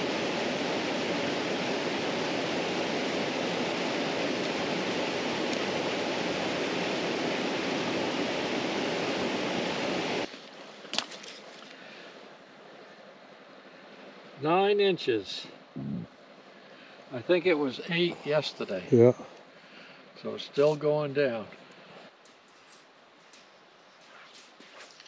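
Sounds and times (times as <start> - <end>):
waterfall and rapids rushing: 0.0 - 15.7.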